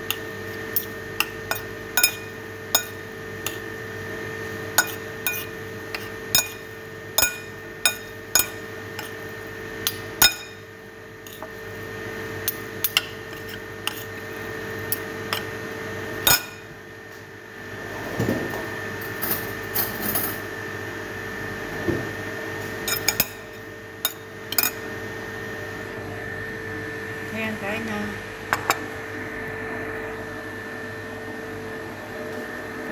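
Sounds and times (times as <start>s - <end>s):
steady hum: 0.0s - 17.6s, 19.2s - 32.9s
metal spoon clinking on pot: 0.8s - 3.6s, 4.8s - 9.2s, 9.9s - 10.6s, 16.3s - 16.5s, 22.9s - 23.4s, 24.0s - 24.8s.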